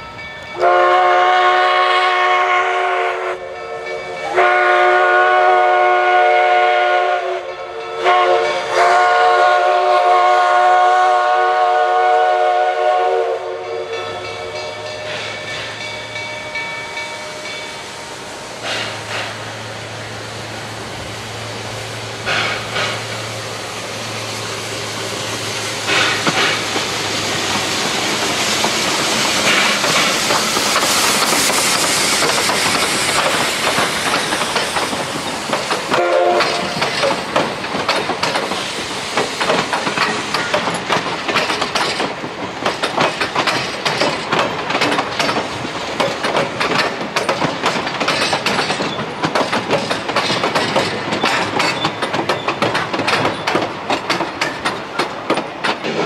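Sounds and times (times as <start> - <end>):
train rumble: 0.0 - 56.0
steam locomotive whistle blowing: 0.6 - 19.4, 35.9 - 37.0
steam hiss: 0.6 - 56.0.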